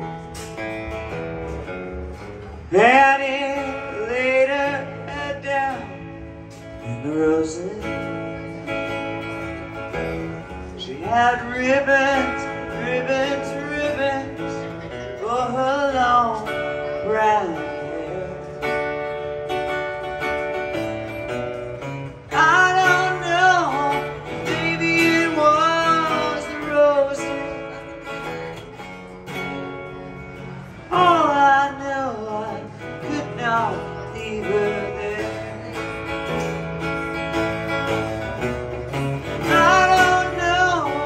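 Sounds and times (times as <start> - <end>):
amplified acoustic guitar: 0.0 - 41.0
person singing wordless melody: 20.7 - 29.0, 30.1 - 41.0.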